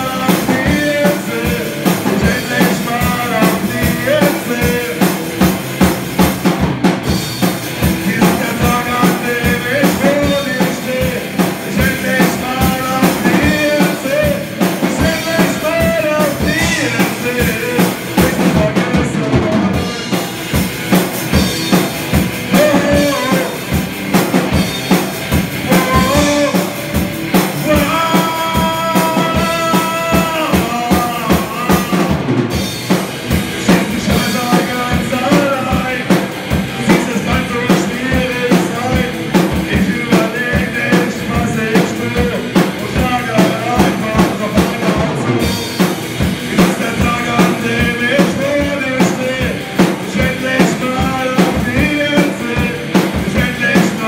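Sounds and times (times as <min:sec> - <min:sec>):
person singing into a microphone: 0:00.0 - 0:05.4, 0:07.9 - 0:20.2, 0:22.4 - 0:23.8, 0:25.6 - 0:32.4, 0:33.5 - 0:54.0
drum kit beat: 0:00.0 - 0:54.0
electric guitar: 0:00.0 - 0:54.0
rock band playing live: 0:00.0 - 0:54.0.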